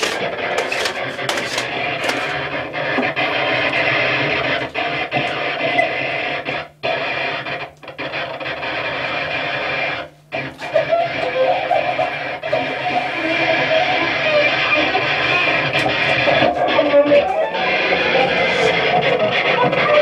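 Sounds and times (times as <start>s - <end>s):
cello scraping noises: 0.0s - 3.1s, 12.5s - 20.0s
low drone: 10.8s - 20.0s.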